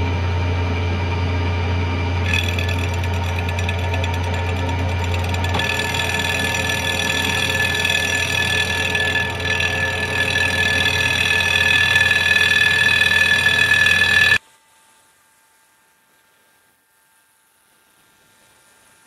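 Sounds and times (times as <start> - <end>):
milling machine cutting metal: 2.2 - 14.4.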